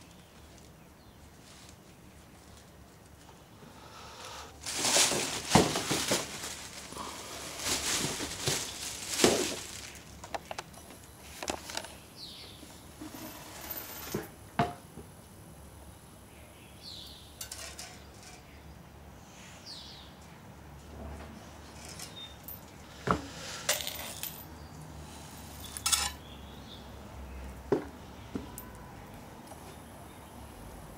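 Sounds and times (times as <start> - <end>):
plastic bag rustling: 4.6 - 12.0.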